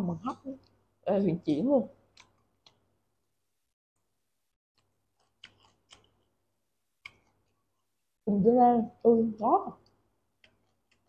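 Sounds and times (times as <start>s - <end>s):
chewing crisp vegetable: 4.8s - 6.3s, 10.4s - 11.0s.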